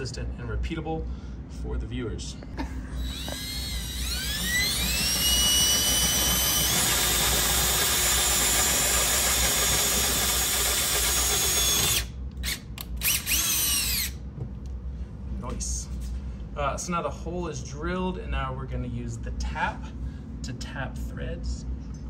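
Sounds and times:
cordless drill whining: 0:03.0 - 0:14.2.

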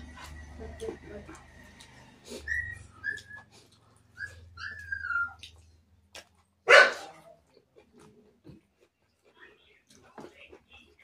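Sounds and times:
dog whining: 0:02.3 - 0:05.8
dog barking: 0:06.6 - 0:07.3.

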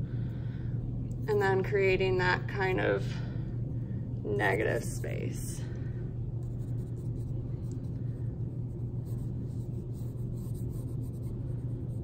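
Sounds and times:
low hum: 0:00.0 - 0:12.0
pencil scratching on paper: 0:09.0 - 0:12.0.

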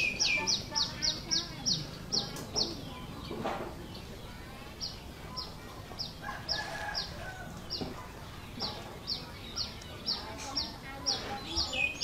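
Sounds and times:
bird chirping: 0:00.0 - 0:12.0.

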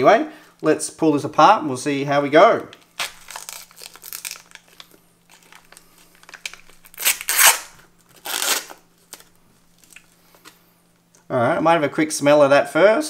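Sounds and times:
foil crinkling: 0:02.8 - 0:10.6
foil bag ripping: 0:03.0 - 0:10.1.

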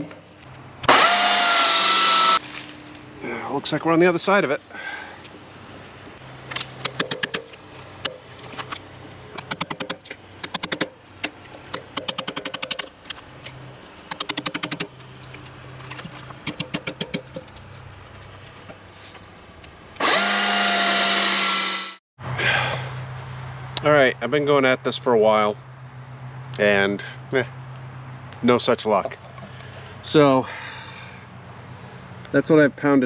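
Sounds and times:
loud power tool running: 0:00.8 - 0:02.7, 0:20.0 - 0:22.0.

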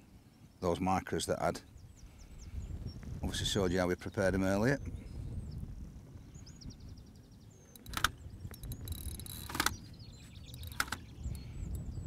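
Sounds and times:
birds chirping: 0:00.0 - 0:12.0
wind rumble on microphone: 0:01.6 - 0:12.0
fishing reel clutch rasping: 0:07.8 - 0:09.7.

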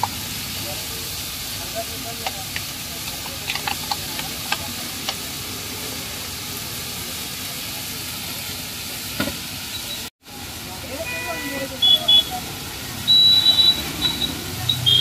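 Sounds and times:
food sizzling in a wok: 0:00.0 - 0:15.0
metal utensil clicking on pan: 0:02.2 - 0:05.2.

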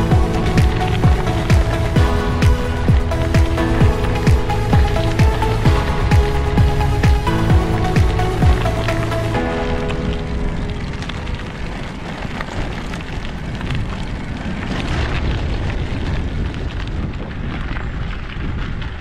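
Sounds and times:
bike tyres crunching on gravel: 0:00.0 - 0:19.0
wind noise on microphone: 0:00.0 - 0:19.0.

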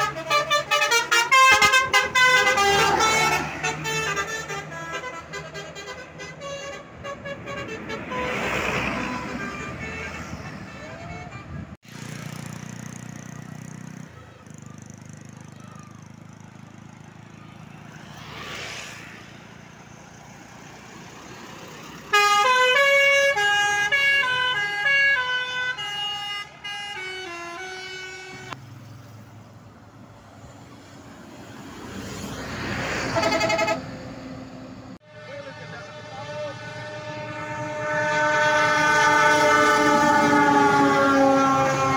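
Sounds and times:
musical air horn playing a tune: 0:00.0 - 0:11.8, 0:22.1 - 0:28.6, 0:33.1 - 0:33.9, 0:35.0 - 0:41.9
bus engines humming: 0:00.0 - 0:41.9.

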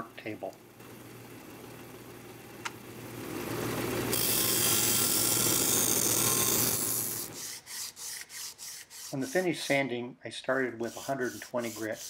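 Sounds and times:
sander motor hum: 0:00.8 - 0:07.7
metal grinding on sanding disc: 0:04.1 - 0:09.9, 0:10.7 - 0:12.0.

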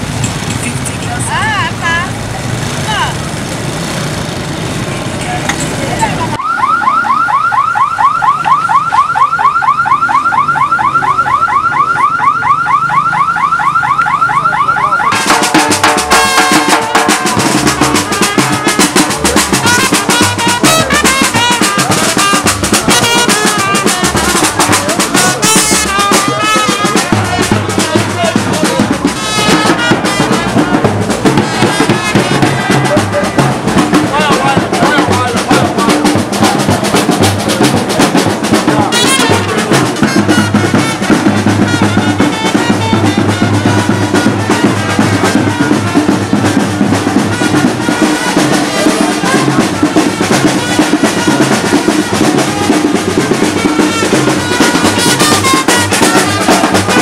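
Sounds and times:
drumming with music: 0:00.0 - 0:57.0
car alarm siren warbling: 0:06.2 - 0:16.4.

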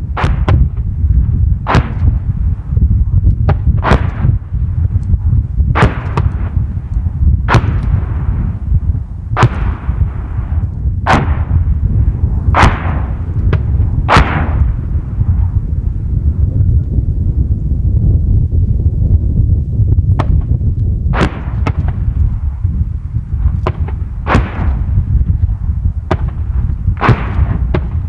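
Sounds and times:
distant mortar fire with echo: 0:00.0 - 0:00.9, 0:01.6 - 0:02.6, 0:03.4 - 0:04.6, 0:05.7 - 0:06.8, 0:07.4 - 0:15.8, 0:20.1 - 0:22.8, 0:23.4 - 0:28.0
wind rumble on microphone: 0:00.0 - 0:28.0.

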